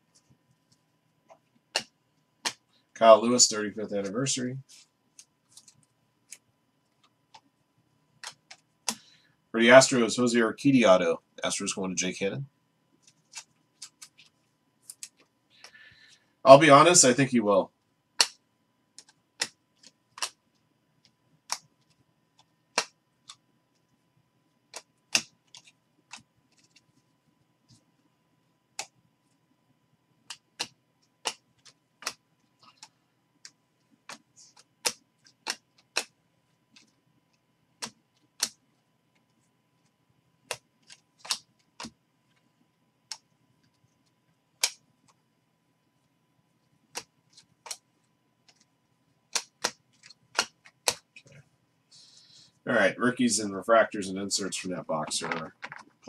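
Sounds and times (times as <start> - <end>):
trading cards flicked clicking: 1.7 - 2.6, 8.2 - 9.0, 18.2 - 18.4, 19.0 - 20.4, 30.3 - 36.1, 40.5 - 42.0, 46.9 - 47.8, 49.3 - 51.2.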